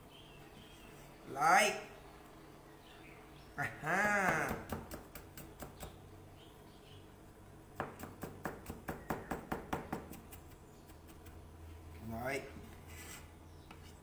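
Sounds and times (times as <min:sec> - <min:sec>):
cleaver chopping on plastic board: 0:07.8 - 0:10.2.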